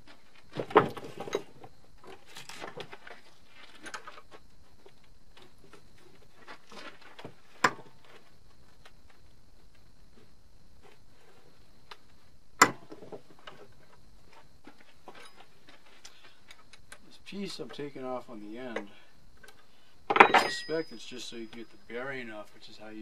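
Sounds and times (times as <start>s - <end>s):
tools clinking on metal parts: 20.1s - 21.7s.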